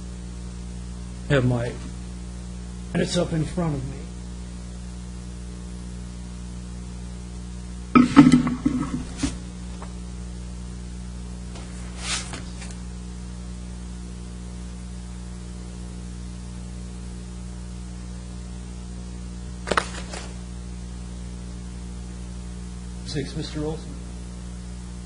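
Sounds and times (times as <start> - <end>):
electrical mains hum: 0.0 - 25.0
sharp knock: 8.0 - 9.4.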